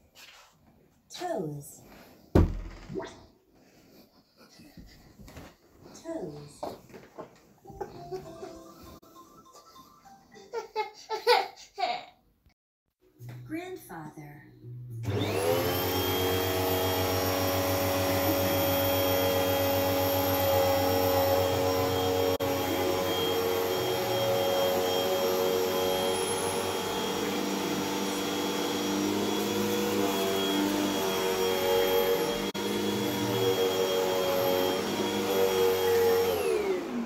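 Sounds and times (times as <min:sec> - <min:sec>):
vacuum cleaner running: 0:15.0 - 0:37.0.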